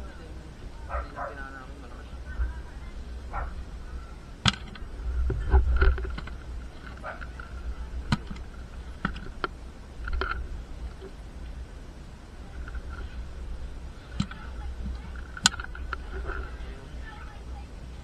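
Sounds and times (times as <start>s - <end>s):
bumping handling noise: 4.4s - 11.2s.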